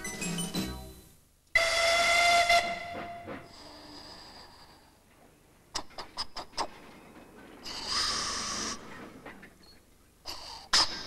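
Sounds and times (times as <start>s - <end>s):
steam train chuffing: 1.6s - 4.5s, 7.6s - 9.2s
steam hissing: 7.6s - 9.0s.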